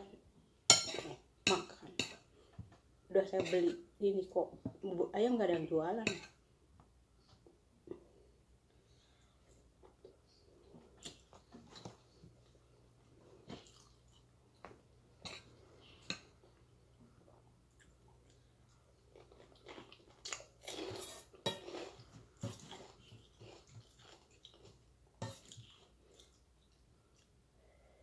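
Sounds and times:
quiet chewing: 8.7s - 27.4s.

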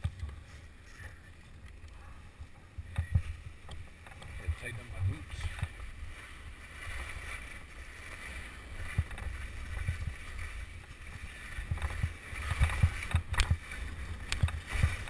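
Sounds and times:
skis scraping over snow: 0.0s - 15.0s
wind on microphone: 0.0s - 15.0s
skis chattering over bumps: 6.8s - 15.0s.

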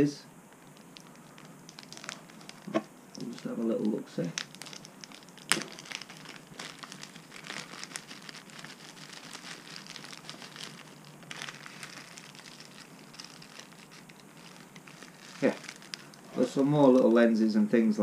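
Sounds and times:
plastic bag crinkling: 0.6s - 17.2s.

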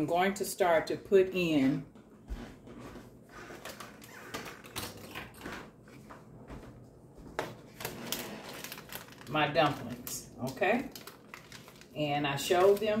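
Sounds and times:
kitchen items clicking and rustling: 3.6s - 5.8s, 7.3s - 13.0s.

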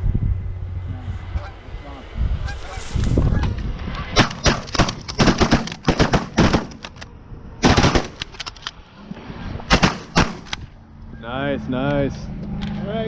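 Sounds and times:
shotgun blasts: 4.2s - 6.8s, 7.6s - 8.2s, 9.7s - 10.6s.

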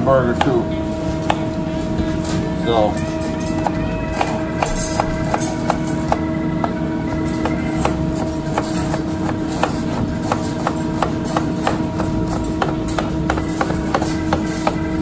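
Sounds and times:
steady hum: 0.0s - 15.0s
knife chopping on cutting board: 1.2s - 1.5s, 7.4s - 15.0s.

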